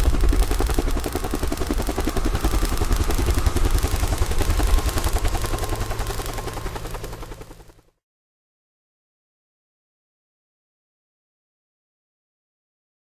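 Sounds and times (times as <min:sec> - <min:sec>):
helicopter rotor chop: 0:00.0 - 0:07.9.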